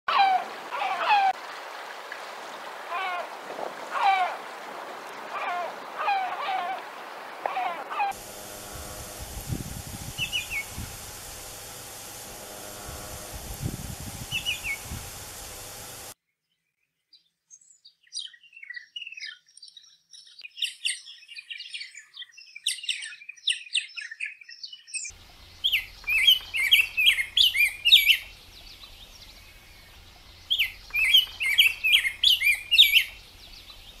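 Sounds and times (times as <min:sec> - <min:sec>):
surf hiss: 0:00.4 - 0:16.2, 0:25.1 - 0:34.0
bird chirps and gurgles: 0:07.6 - 0:12.3, 0:12.9 - 0:16.1, 0:20.2 - 0:34.0
bird singing warbled phrases: 0:10.1 - 0:11.4, 0:14.2 - 0:15.3, 0:16.4 - 0:34.0.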